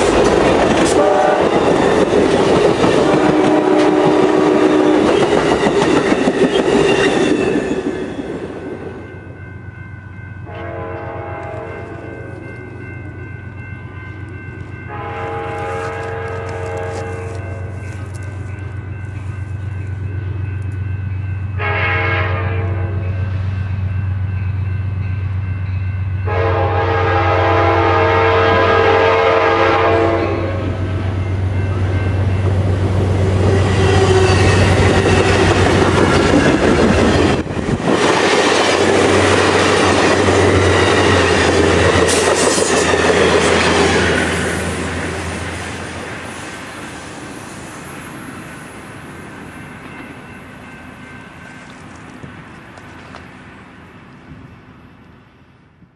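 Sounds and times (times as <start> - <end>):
clickety-clack of train cars: 0.0 - 9.1, 23.8 - 46.4
train wheels on rails: 0.0 - 55.9
train horn: 0.7 - 2.1, 2.8 - 5.5, 10.4 - 12.5, 14.8 - 17.9, 21.5 - 23.5, 26.2 - 32.5, 33.2 - 35.6.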